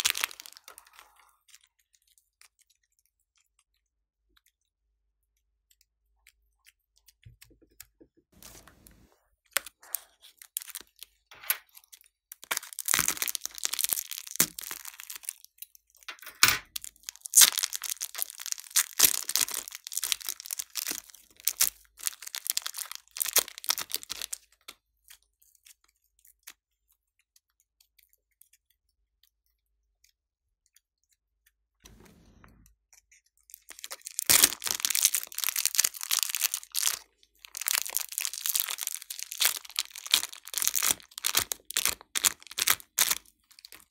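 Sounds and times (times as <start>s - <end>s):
plastic bags crinkling: 0.0s - 1.0s, 9.7s - 11.0s, 12.4s - 15.5s, 16.7s - 24.4s, 33.5s - 43.9s.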